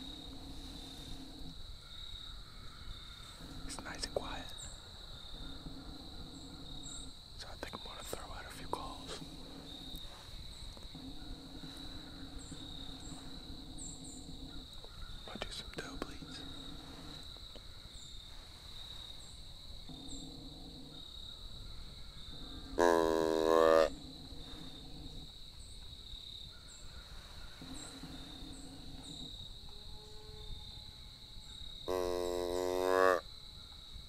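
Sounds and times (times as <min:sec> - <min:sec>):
insects trilling: 0:00.0 - 0:34.0
deer call blown: 0:22.8 - 0:24.0, 0:31.9 - 0:33.3.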